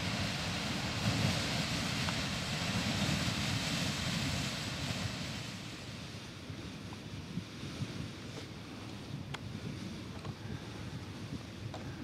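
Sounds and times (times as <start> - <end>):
geyser hissing: 0.0 - 6.3
wind on microphone: 0.0 - 12.0.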